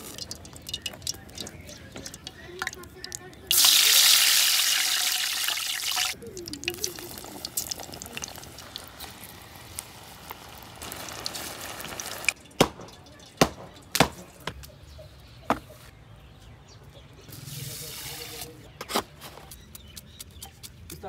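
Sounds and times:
water running from tap: 0:03.5 - 0:08.8.

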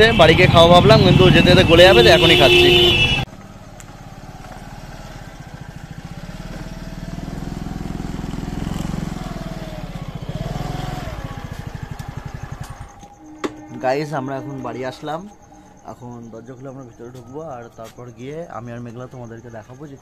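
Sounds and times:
scooter engine running: 0:00.4 - 0:13.2.

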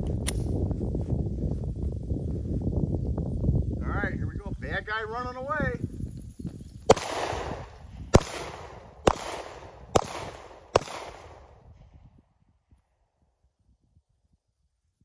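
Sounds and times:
pistol shots with echo: 0:06.9 - 0:11.6.

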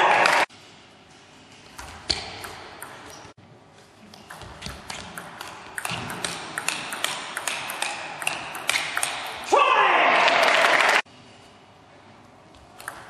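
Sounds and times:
table tennis ball clicking: 0:04.1 - 0:09.4, 0:12.8 - 0:13.0.

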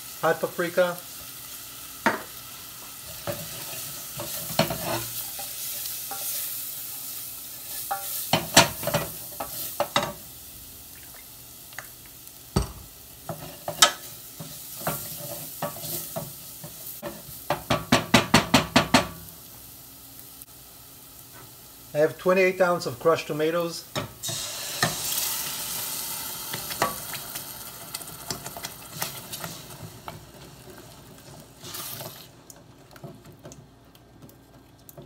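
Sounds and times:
onions sizzling in oil: 0:00.0 - 0:33.9
wooden spoon scraping a pan: 0:02.8 - 0:10.0, 0:13.3 - 0:17.3.

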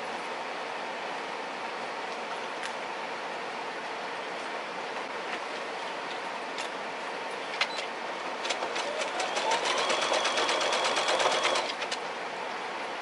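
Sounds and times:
sewing machine motor whine: 0:08.3 - 0:11.9
sewing machine clicks: 0:08.4 - 0:12.0.

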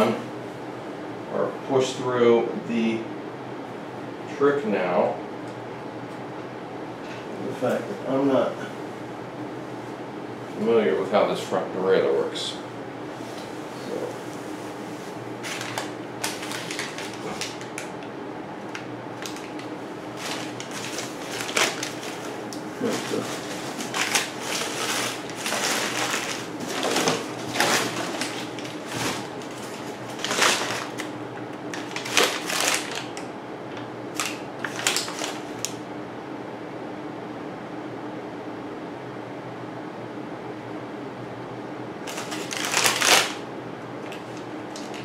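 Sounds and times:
steady low hum: 0:00.0 - 0:45.0
rustling and crinkling of handling: 0:13.1 - 0:18.0, 0:18.6 - 0:35.8, 0:42.0 - 0:43.4, 0:44.0 - 0:45.0.

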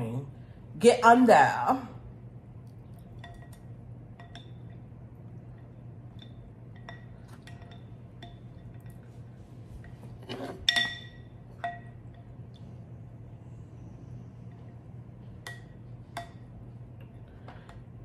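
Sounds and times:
low steady hum: 0:00.0 - 0:18.0
spoon clattering in bowl: 0:03.2 - 0:04.8, 0:06.1 - 0:09.0, 0:10.3 - 0:12.3.

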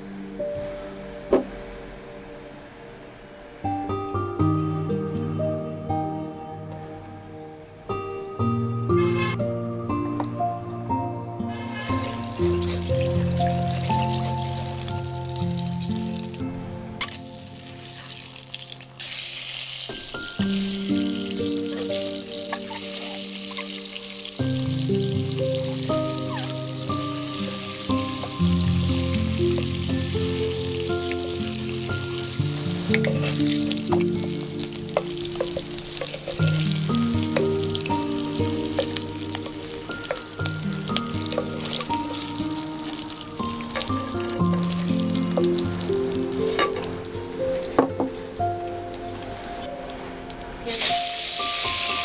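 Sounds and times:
background music: 0:00.0 - 0:52.0
hot oil sizzling in a pan: 0:11.5 - 0:16.4, 0:17.0 - 0:47.8, 0:50.7 - 0:52.0.

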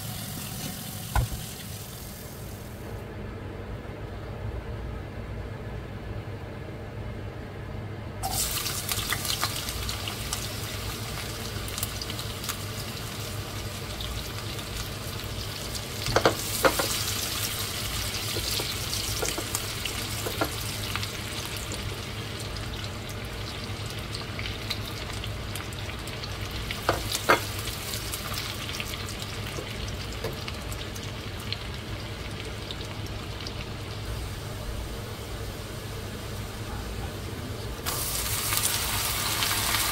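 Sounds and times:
food sizzling in hot oil: 0:00.0 - 0:02.8, 0:08.2 - 0:36.4, 0:37.8 - 0:39.9
utensil knocking against pan: 0:16.1 - 0:16.9.

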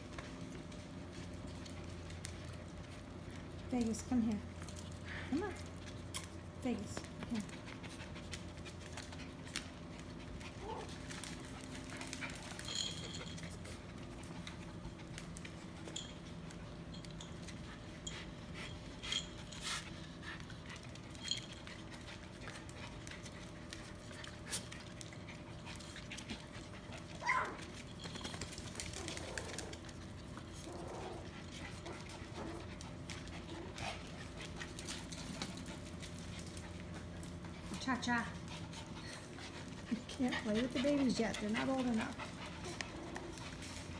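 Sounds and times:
steady low hum: 0:00.0 - 0:43.9
dogs panting: 0:00.2 - 0:43.9
dog whining: 0:10.6 - 0:11.0, 0:27.2 - 0:27.6.

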